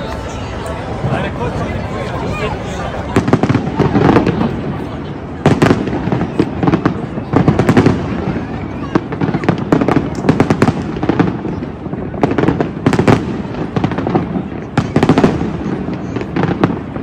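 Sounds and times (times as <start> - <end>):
continuous fireworks rumble: 0.0 - 17.0
fireworks bangs and crackling: 0.0 - 17.0.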